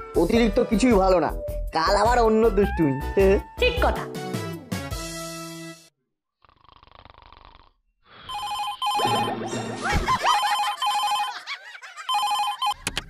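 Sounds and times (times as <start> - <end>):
telephone trilling ring: 8.3 - 9.5, 10.3 - 12.8.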